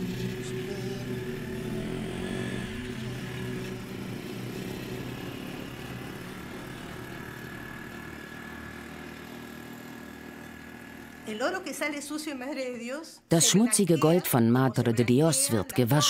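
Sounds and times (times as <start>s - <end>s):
small motorcycle engine running: 0.0s - 12.8s.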